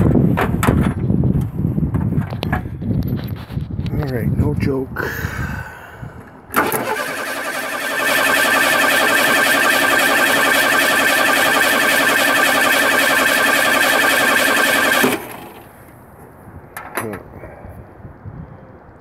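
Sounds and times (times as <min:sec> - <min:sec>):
engine starter cranking whine: 0:06.5 - 0:15.8.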